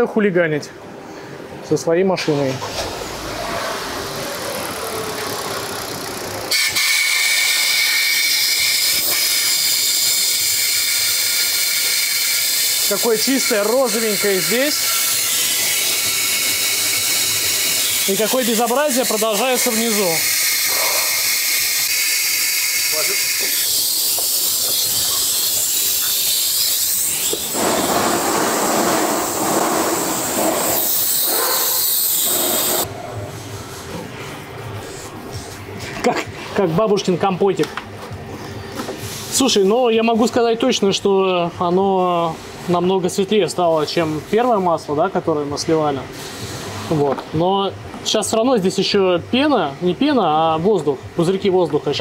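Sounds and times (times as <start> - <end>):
engine running: 2.9 - 6.5
compressed air hissing: 13.6 - 32.9, 46.1 - 46.9.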